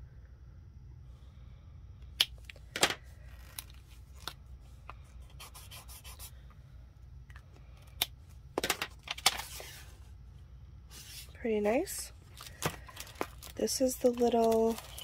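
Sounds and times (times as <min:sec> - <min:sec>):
marker nib scratching paper: 0:05.3 - 0:06.3.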